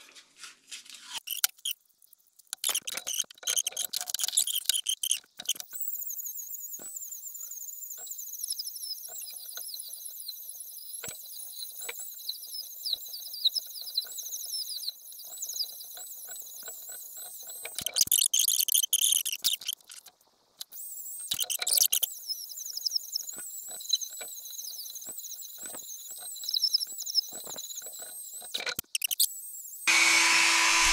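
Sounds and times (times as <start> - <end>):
rotary tool grinding: 29.9 - 30.9.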